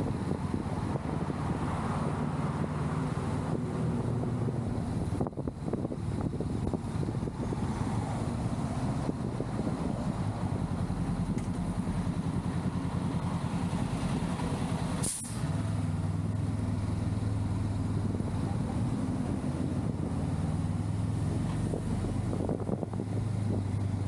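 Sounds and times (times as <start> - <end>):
trucks in traffic: 0.0 - 24.0
short hiss: 15.0 - 15.5.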